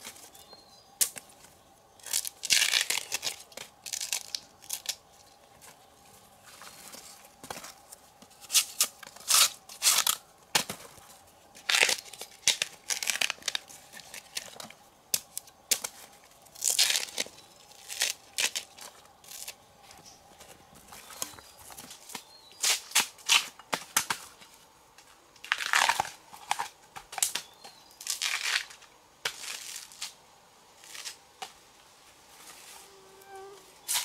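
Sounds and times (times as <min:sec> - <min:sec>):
tearing and crinkling: 0:02.0 - 0:05.1, 0:08.4 - 0:10.2, 0:11.6 - 0:15.9, 0:16.6 - 0:19.6, 0:25.4 - 0:26.7, 0:28.0 - 0:30.2.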